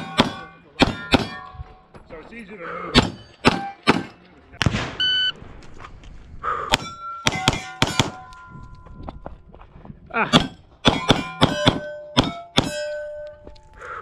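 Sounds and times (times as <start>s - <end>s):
pistol shots: 0.0s - 1.4s, 6.7s - 8.3s, 10.4s - 12.8s
steel plates ringing: 0.0s - 1.6s, 6.8s - 9.0s, 10.4s - 13.8s.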